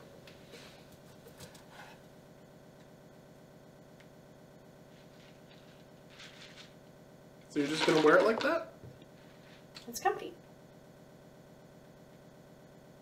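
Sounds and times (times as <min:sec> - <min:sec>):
faint hum: 0:00.0 - 0:13.0
soft rustles: 0:04.9 - 0:06.8.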